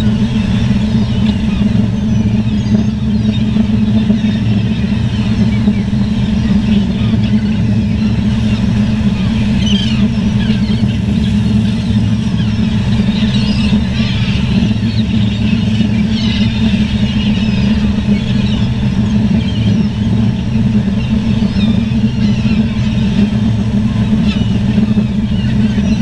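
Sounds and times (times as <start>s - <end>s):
gulls calling: 0.0s - 26.0s
low engine drone: 0.0s - 26.0s.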